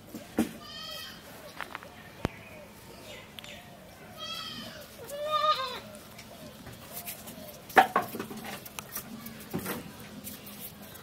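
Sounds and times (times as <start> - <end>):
sharp taps and knocks: 7.7 - 9.9.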